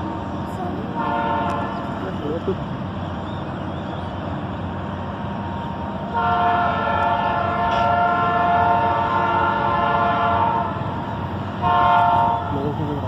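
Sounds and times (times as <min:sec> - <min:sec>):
train air horn blast: 0:00.9 - 0:02.0, 0:06.1 - 0:12.7.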